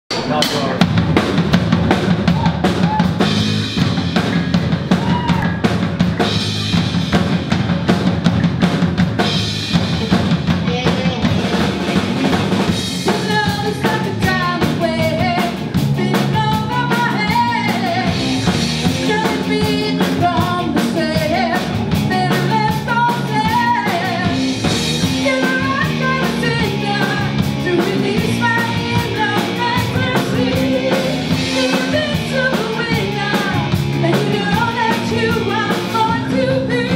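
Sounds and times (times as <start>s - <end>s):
drum kit beat: 0.1s - 36.9s
electric guitar: 0.2s - 36.9s
woman singing: 13.0s - 18.3s, 18.9s - 36.9s.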